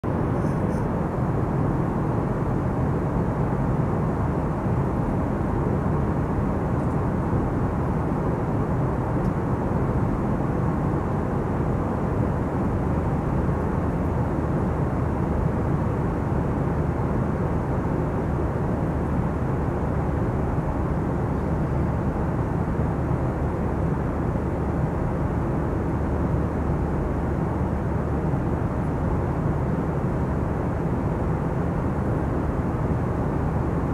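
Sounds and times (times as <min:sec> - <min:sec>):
airplane cabin noise: 0:00.0 - 0:33.9.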